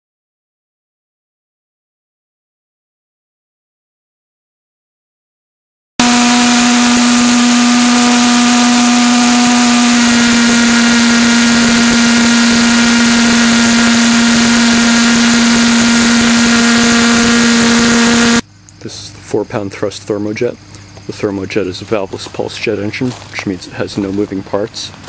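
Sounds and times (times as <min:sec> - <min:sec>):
pulsejet engine droning: 0:06.0 - 0:18.9.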